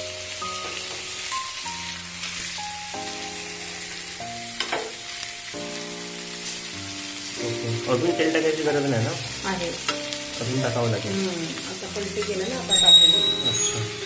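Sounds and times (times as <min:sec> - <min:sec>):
background music of held notes: 0:00.0 - 0:14.0
fish sizzling in oil: 0:00.0 - 0:14.0
metal spatula scrape: 0:12.2 - 0:14.0.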